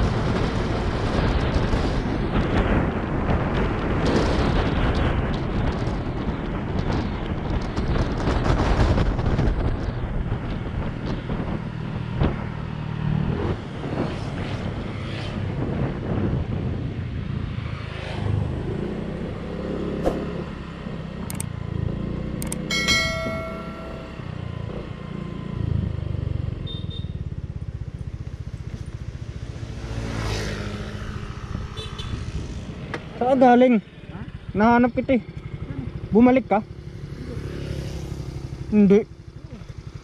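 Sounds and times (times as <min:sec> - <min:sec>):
motorcycle engine running: 0:20.0 - 0:40.0
brief pitched tone: 0:22.7 - 0:24.4.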